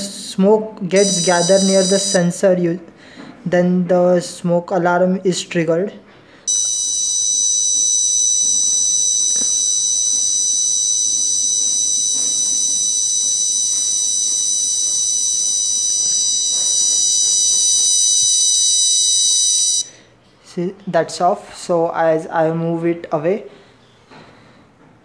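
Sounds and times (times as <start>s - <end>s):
high-pitched buzzer tone: 1.0s - 2.4s, 6.5s - 20.0s.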